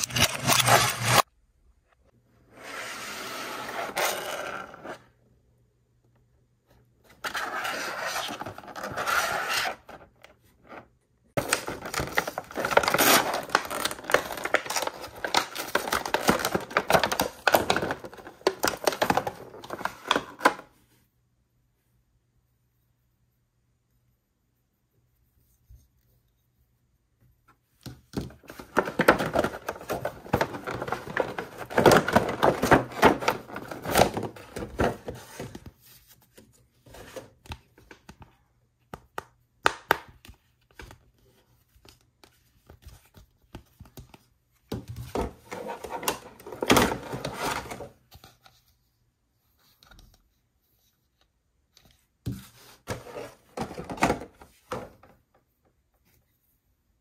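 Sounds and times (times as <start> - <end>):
plastic and cardboard packaging crackling: 11.4 - 20.4, 28.4 - 35.0.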